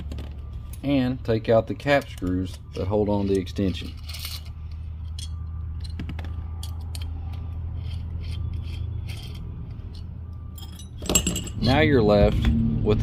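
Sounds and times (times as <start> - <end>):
steady low hum: 0.0 - 13.0
metal clicks and scrapes: 1.8 - 11.6.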